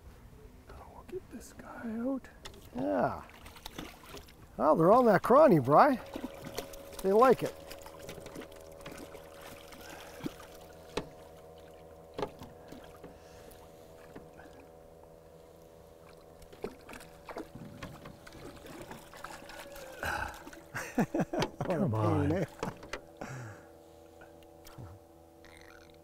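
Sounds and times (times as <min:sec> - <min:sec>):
faint steady hum: 0:00.0 - 0:26.0
small water splashes: 0:02.4 - 0:14.8, 0:15.9 - 0:23.3.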